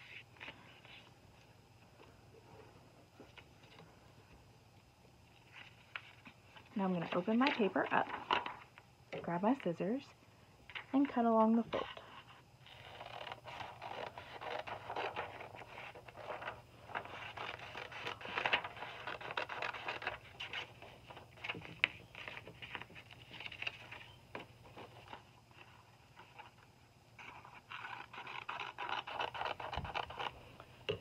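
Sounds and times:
paper rustling: 0:11.7 - 0:30.4
scissors cutting paper: 0:12.7 - 0:20.7, 0:27.2 - 0:30.4.

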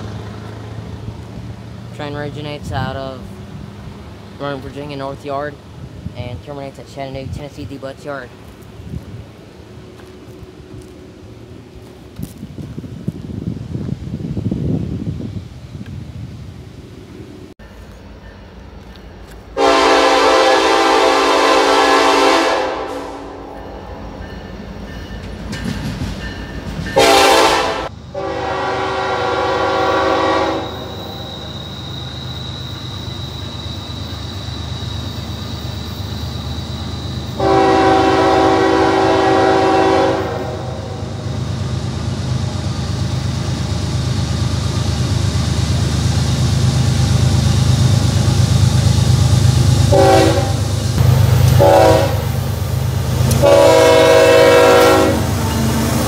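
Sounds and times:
locomotive engine rumble: 0:00.0 - 0:56.0
locomotive air horn blasts: 0:19.6 - 0:23.5, 0:27.0 - 0:30.9, 0:37.4 - 0:41.0, 0:49.9 - 0:50.7, 0:51.5 - 0:52.3, 0:53.4 - 0:55.3.

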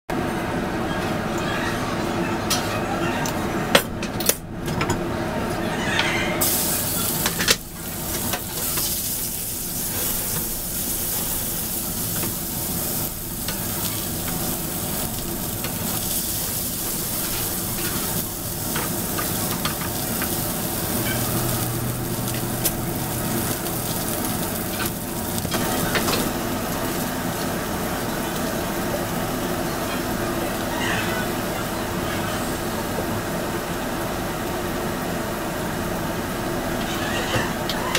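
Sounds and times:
chicken sizzling in a frying pan: 0:06.4 - 0:35.8.

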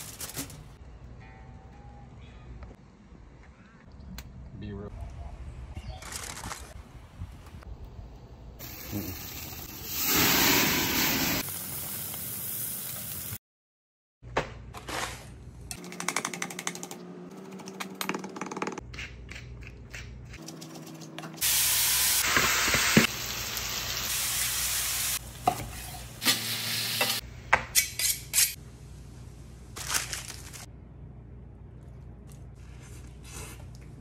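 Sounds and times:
mushrooms sizzling in skillet: 0:08.6 - 0:13.4, 0:21.4 - 0:27.2.

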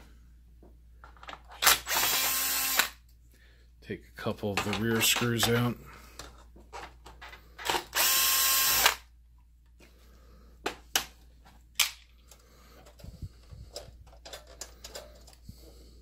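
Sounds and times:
cordless drill running: 0:01.6 - 0:03.0, 0:07.7 - 0:09.0.

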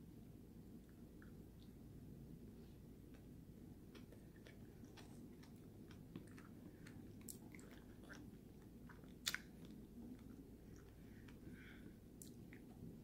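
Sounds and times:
low steady hum: 0:00.0 - 0:13.0
chewing strawberries: 0:03.1 - 0:13.0
wet mouth clicks: 0:08.9 - 0:11.0.

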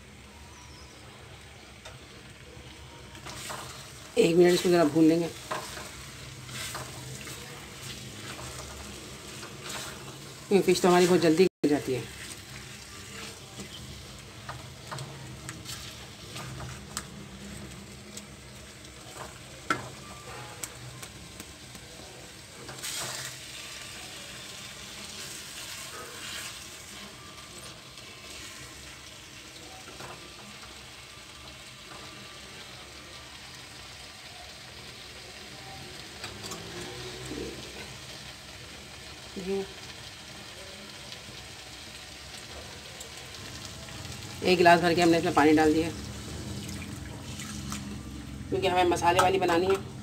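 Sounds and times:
fish sizzling in a pan: 0:00.0 - 0:50.0
spatula scraping a pan: 0:03.3 - 0:10.4, 0:22.6 - 0:24.0.

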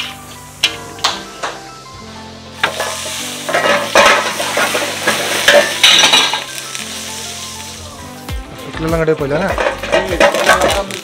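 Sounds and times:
food sizzling in a wok: 0:00.0 - 0:11.0
metal ladle scraping a pan: 0:02.6 - 0:06.6, 0:09.4 - 0:10.8.

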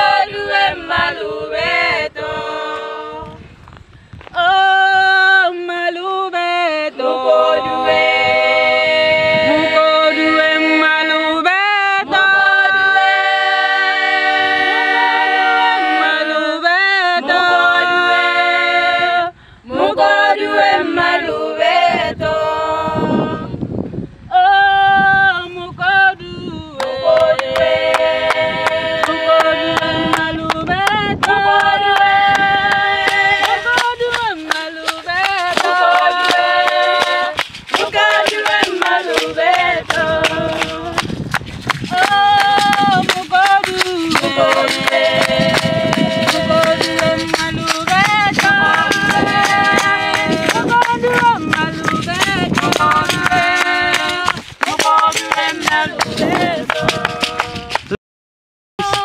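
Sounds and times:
women singing a cappella: 0:00.0 - 0:03.5, 0:04.3 - 0:41.2, 0:41.8 - 0:57.8, 0:58.8 - 0:59.0
rhythmic hand clapping: 0:26.8 - 0:58.0, 0:58.8 - 0:59.0.

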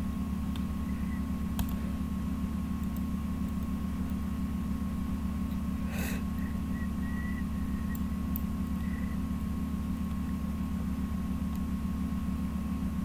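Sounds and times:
low electrical hum with hiss: 0:00.0 - 0:13.0.

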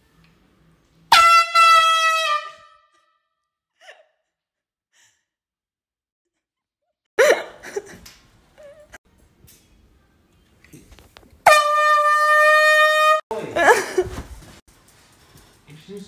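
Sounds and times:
loud air horn blast: 0:01.1 - 0:02.9, 0:11.4 - 0:13.2.

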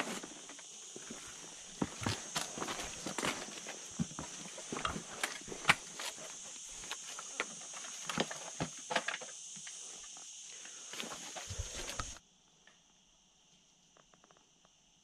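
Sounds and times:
footsteps on rocky ground: 0:00.0 - 0:07.4, 0:11.0 - 0:12.2.

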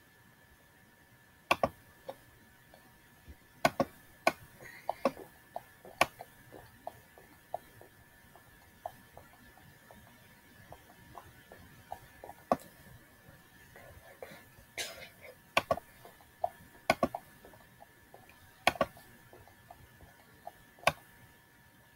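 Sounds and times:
computer mouse clicking: 0:01.5 - 0:02.9, 0:03.6 - 0:12.8, 0:15.5 - 0:21.1.

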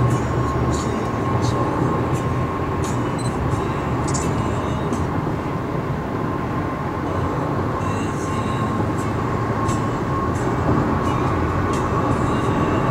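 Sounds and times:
car engine: 0:00.0 - 0:12.9
road and tyre rumble: 0:00.0 - 0:12.9.

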